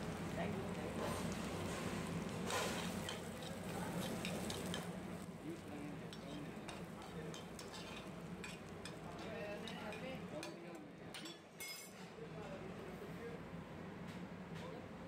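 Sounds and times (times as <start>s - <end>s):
garlic sizzling in oil: 0.0s - 10.0s
metal spoon scraping pan: 7.4s - 8.6s.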